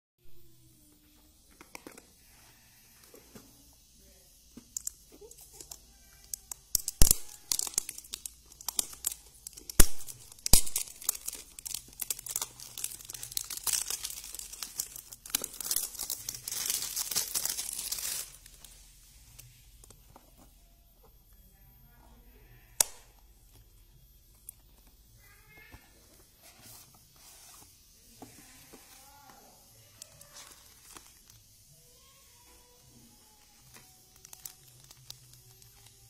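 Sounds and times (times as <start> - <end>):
wrapping crinkling and tearing: 4.8 - 19.6, 29.8 - 32.1, 33.1 - 36.0.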